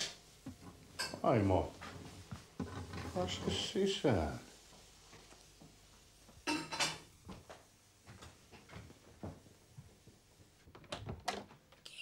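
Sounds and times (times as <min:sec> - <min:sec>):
wooden door clicks: 0:10.7 - 0:11.6.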